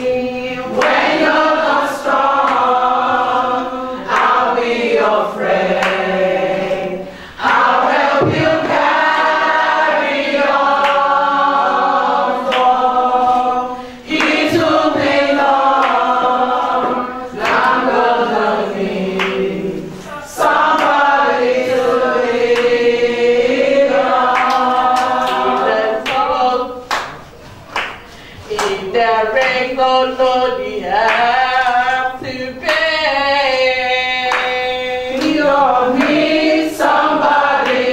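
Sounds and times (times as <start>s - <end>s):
women singing together: 0.0s - 37.9s.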